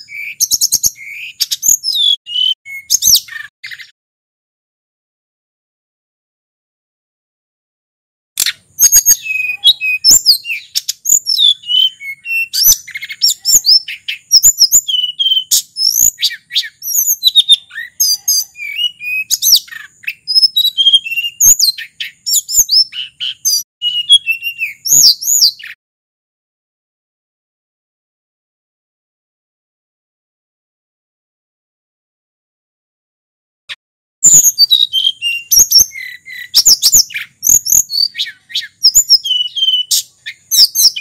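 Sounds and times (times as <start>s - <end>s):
bird singing whistled song: 0.0s - 4.0s, 8.4s - 25.8s, 34.2s - 41.0s.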